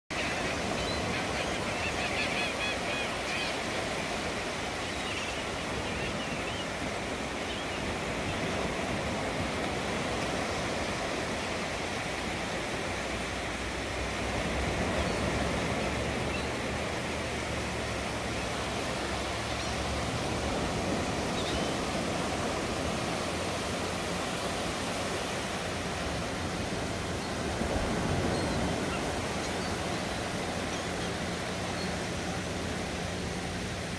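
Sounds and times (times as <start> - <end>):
surf on sandy beach: 0.1 - 33.9.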